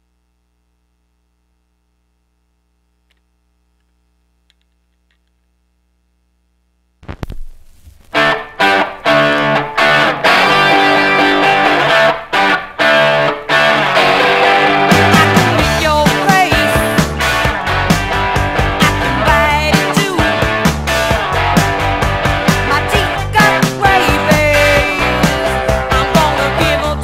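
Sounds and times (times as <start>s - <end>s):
distorted electric guitar riff: 7.0s - 27.0s.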